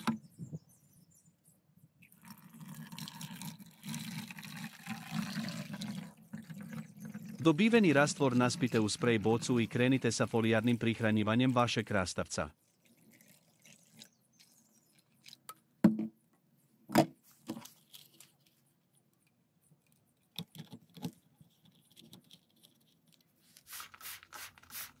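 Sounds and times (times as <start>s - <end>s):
plastic bottle knocks and clicks: 15.8s - 16.2s, 16.9s - 17.6s
trigger sprayer hissing: 23.6s - 25.0s.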